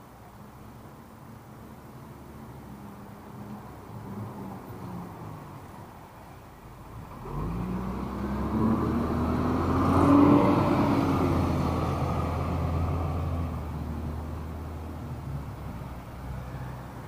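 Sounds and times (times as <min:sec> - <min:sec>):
bus engine rumble passing: 0:00.0 - 0:17.0.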